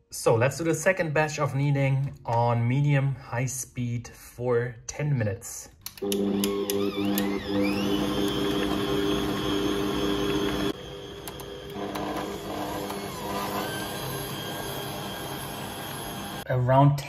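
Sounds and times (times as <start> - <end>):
stand mixer motor whining: 6.0 - 16.4.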